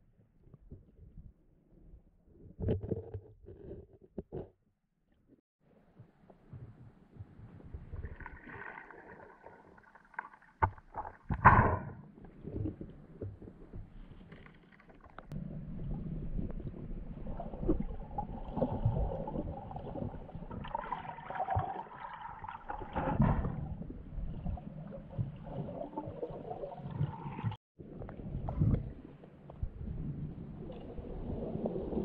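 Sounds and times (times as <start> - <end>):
water sloshing and gurgling: 6.5 - 32.0
steady low rumble: 15.3 - 19.0.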